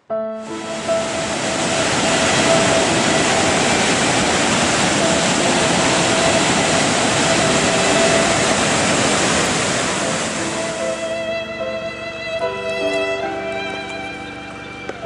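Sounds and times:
music: 0.0 - 15.0
water rushing over boulders: 0.6 - 11.2.

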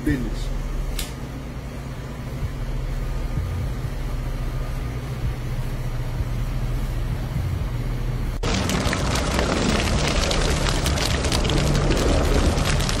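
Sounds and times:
low machine hum: 0.0 - 13.0
loud crackling noise: 8.4 - 13.0.

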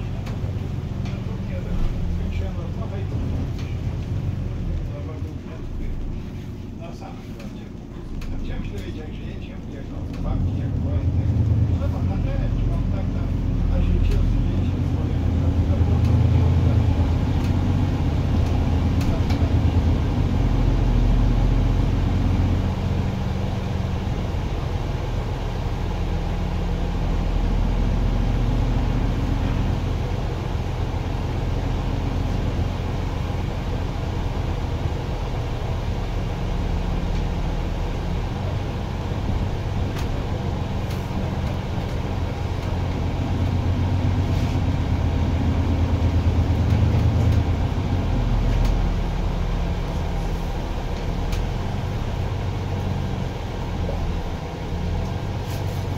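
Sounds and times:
bus diesel engine running: 0.0 - 55.9
road hiss: 43.9 - 44.9, 51.4 - 55.9.

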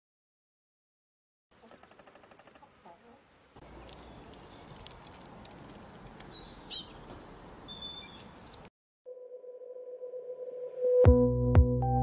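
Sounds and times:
songbird chirping: 1.6 - 8.7.

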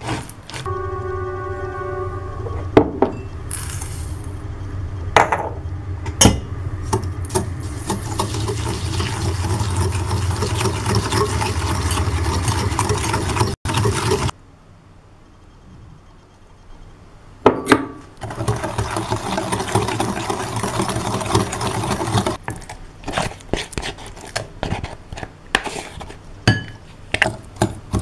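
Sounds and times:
steady low hum: 0.3 - 13.5.

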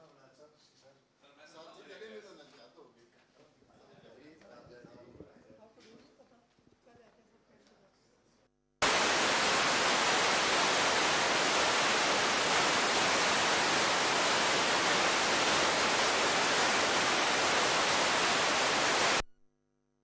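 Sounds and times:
loud static hiss: 8.8 - 19.3.

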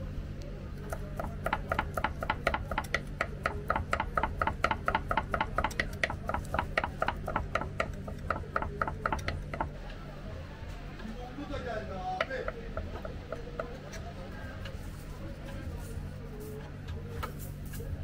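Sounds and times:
knife chopping on wooden board: 0.9 - 9.7.

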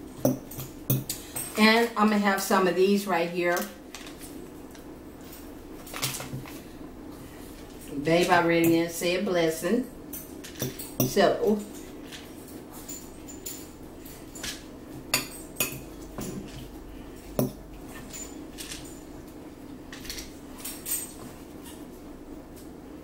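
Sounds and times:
fork clinking against a bowl: 15.1 - 16.0.

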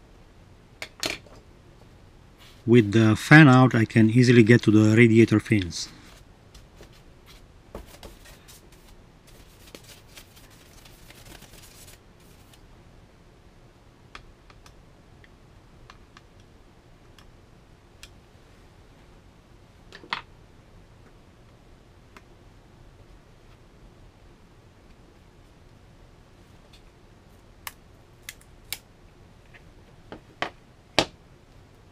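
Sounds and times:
brush bristles rustling: 6.0 - 12.6.

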